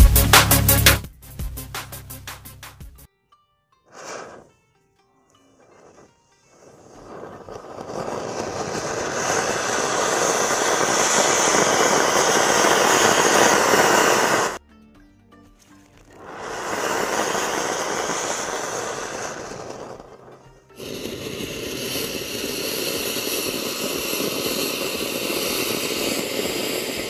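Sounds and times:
firework fountain hissing: 3.9s - 4.5s, 5.4s - 14.6s, 16.1s - 27.0s.

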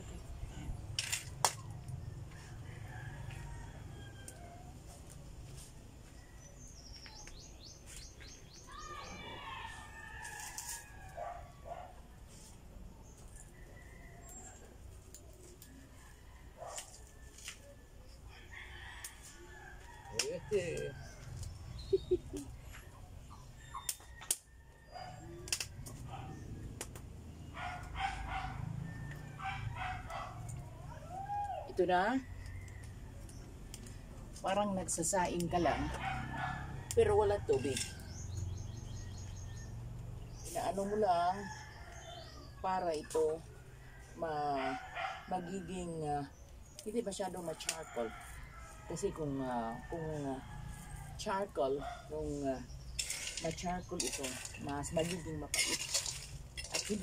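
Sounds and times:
birds chirping: 6.2s - 10.2s, 18.0s - 28.6s, 37.5s - 42.6s
dog barking: 11.2s - 12.0s, 27.5s - 28.8s, 29.4s - 30.5s, 35.7s - 36.8s, 44.6s - 45.3s
metal spoon clinking against wok: 53.0s - 57.0s.

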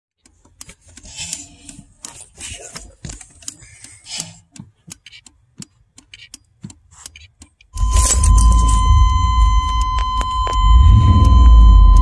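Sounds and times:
faint low rumble: 7.8s - 12.0s.

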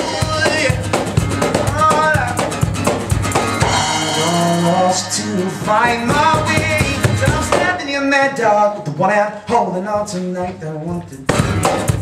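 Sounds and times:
man singing: 0.0s - 1.0s, 3.6s - 12.0s
cajon drum beat: 0.0s - 12.0s
strummed acoustic guitar: 0.0s - 12.0s.

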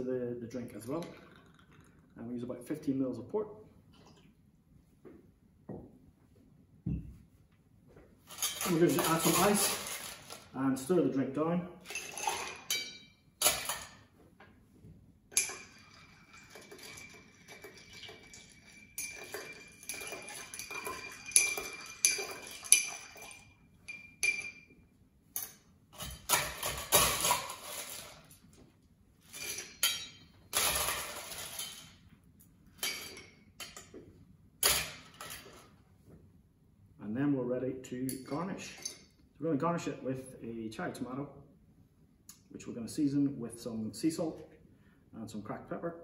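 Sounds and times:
bar spoon stirring ice: 8.3s - 10.4s, 15.3s - 24.4s
ice scooped from metal bucket: 8.3s - 10.5s
ice clinking against glass: 15.3s - 24.7s.

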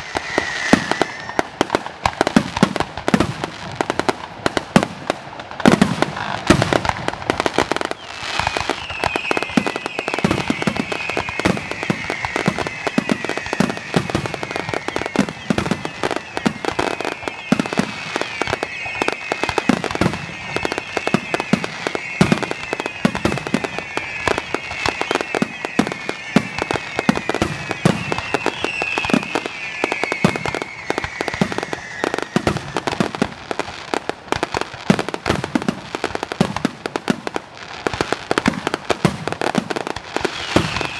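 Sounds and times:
high wavering whistling tone: 0.0s - 1.8s, 7.8s - 33.0s
fireworks bangs and crackling: 0.0s - 40.9s.

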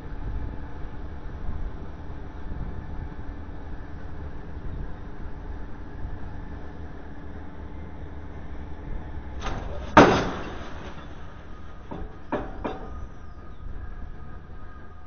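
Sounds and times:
low engine rumble: 0.0s - 15.0s
pile driver striking steel: 9.4s - 13.2s.

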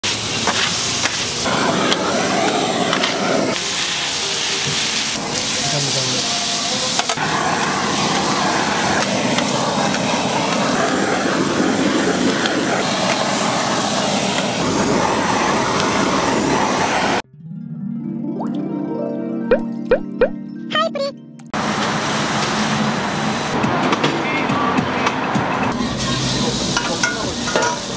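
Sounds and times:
blowtorch hissing: 0.0s - 17.2s, 21.6s - 27.9s
meat sizzling on griddle: 0.0s - 17.2s, 25.7s - 27.9s.

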